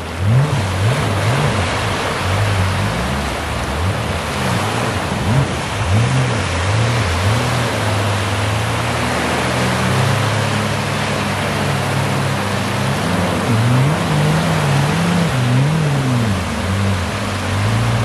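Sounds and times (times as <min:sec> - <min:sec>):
jet ski engines revving: 0:00.0 - 0:18.0
surf washing onto beach: 0:00.0 - 0:18.0.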